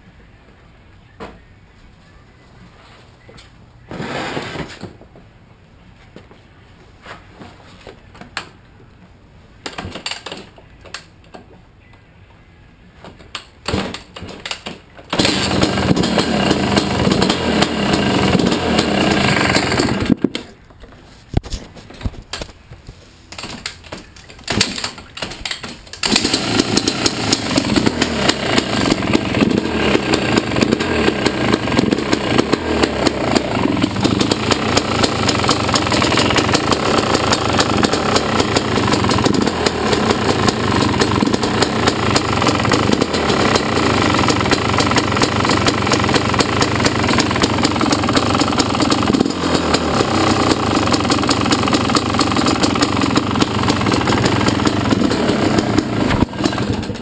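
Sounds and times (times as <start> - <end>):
engine ticking: 15.1 - 20.1, 26.0 - 57.0
two-stroke engine idling: 15.1 - 20.1, 26.0 - 57.0.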